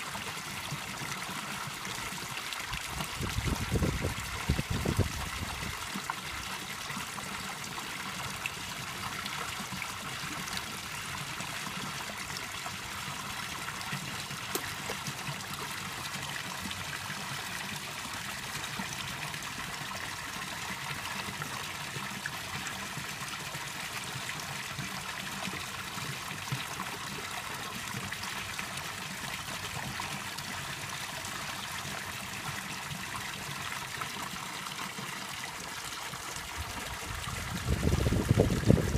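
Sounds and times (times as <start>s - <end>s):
faint water splashes: 0.0s - 23.9s
water trickling in a pond: 0.0s - 38.9s.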